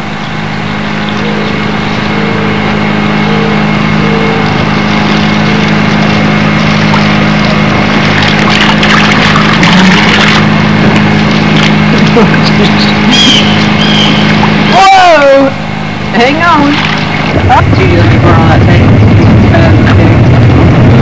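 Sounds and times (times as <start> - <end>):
mechanical drone: 0.0 - 21.0
crackling noise: 1.0 - 14.7.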